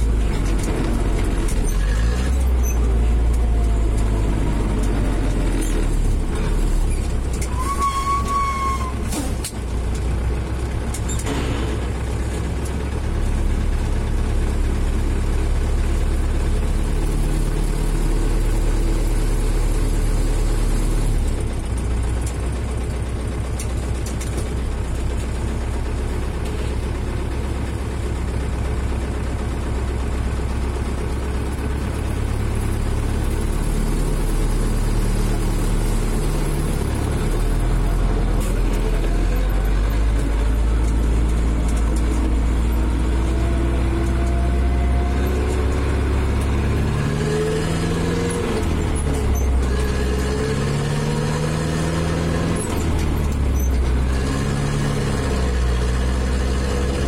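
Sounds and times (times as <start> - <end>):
diesel tractor engine running: 0.0 - 57.0
short high squeal: 7.4 - 9.5.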